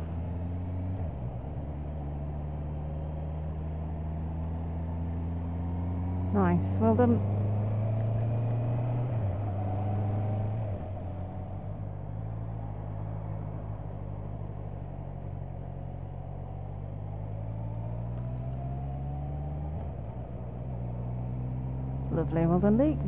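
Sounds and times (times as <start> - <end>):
motorcycle engine running: 0.0 - 17.5, 19.9 - 23.0.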